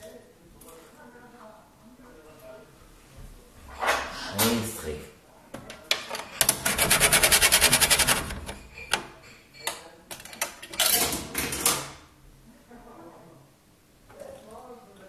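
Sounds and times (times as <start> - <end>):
machine rattling: 6.3 - 9.0.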